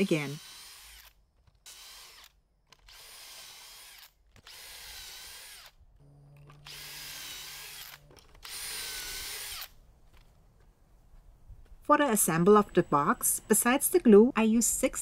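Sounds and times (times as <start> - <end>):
drill boring into wood: 0.0 - 9.8.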